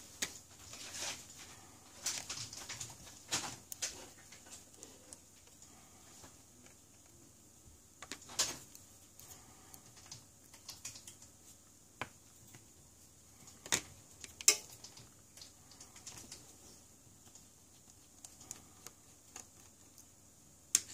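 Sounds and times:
small tools clicking and tapping: 13.6s - 16.4s.

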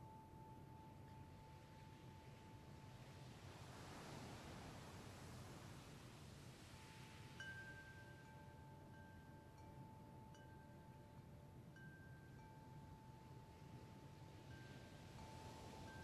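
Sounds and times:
faint chime tones: 6.7s - 16.0s.

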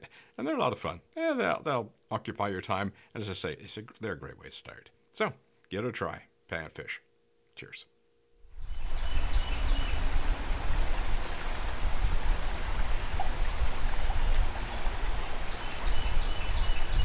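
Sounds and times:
river water rushing: 8.6s - 17.0s.

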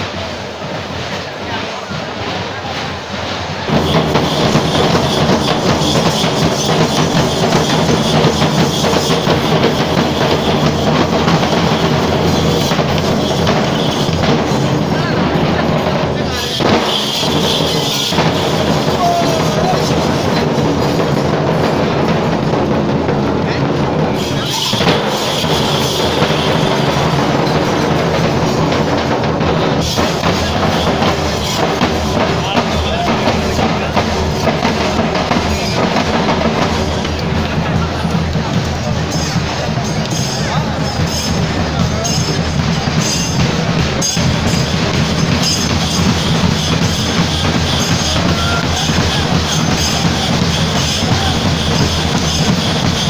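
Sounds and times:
many drums beaten fast: 0.0s - 53.0s.

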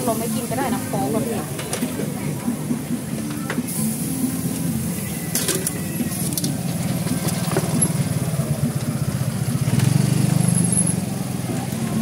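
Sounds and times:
small engine running: 6.0s - 12.0s.

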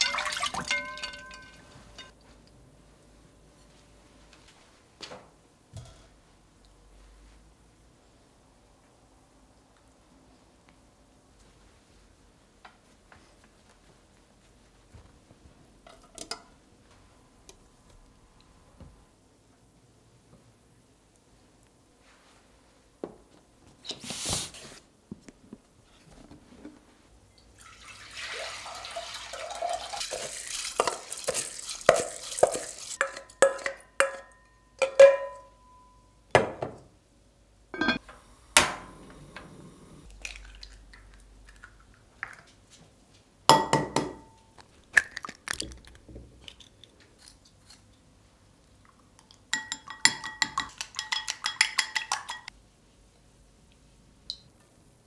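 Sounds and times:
water pouring into pot: 0.0s - 1.6s, 27.6s - 33.0s
metal bowl clinking against pot: 0.0s - 2.2s, 30.8s - 36.0s, 37.8s - 38.0s, 49.6s - 52.5s
chopsticks beating eggs in glass bowl: 30.0s - 33.6s, 49.6s - 52.5s.

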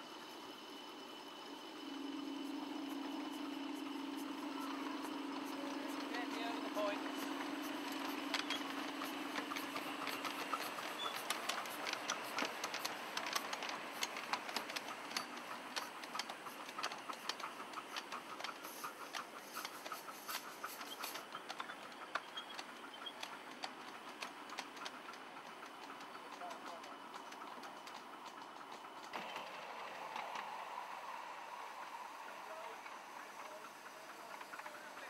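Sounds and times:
train wheels clicking over rail joints: 0.0s - 35.0s
steam hiss: 29.1s - 35.0s.

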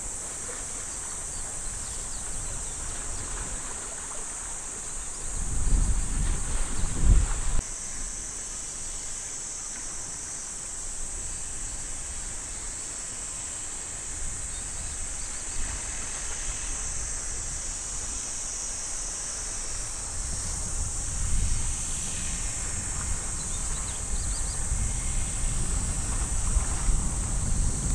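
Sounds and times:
insects droning: 0.0s - 27.9s
wind buffeting microphone: 1.0s - 4.1s, 5.0s - 7.6s, 19.8s - 27.9s
wind rumble: 5.2s - 7.6s, 19.8s - 27.9s.

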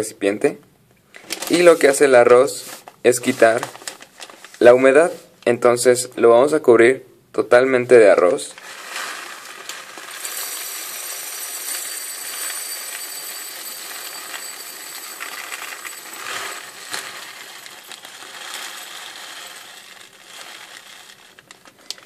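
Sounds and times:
rice pouring into a glass: 8.6s - 22.0s.

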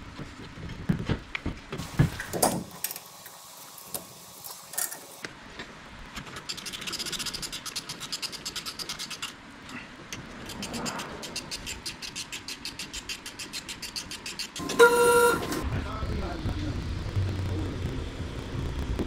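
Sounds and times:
hand ratchet clicking: 6.3s - 9.4s, 10.1s - 14.8s.

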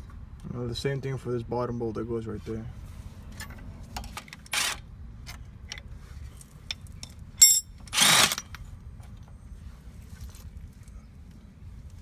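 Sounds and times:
metal tools clinking: 6.7s - 8.6s
sharp ringing metallic clink: 7.4s - 7.8s.

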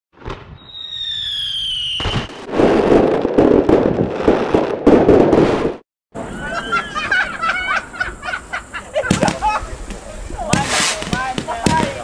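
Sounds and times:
crackling firework bangs: 0.2s - 5.8s, 9.0s - 12.0s
whistling firework: 0.2s - 6.9s, 9.1s - 9.6s, 10.5s - 12.0s.

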